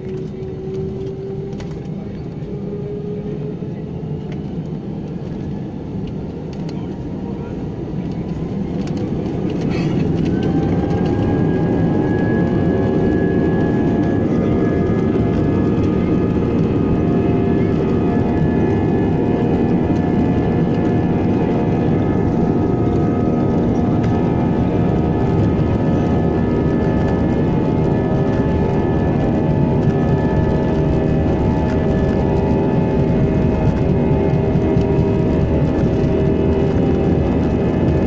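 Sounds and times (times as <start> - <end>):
jet engines rumbling and whining: 0.0 - 38.0.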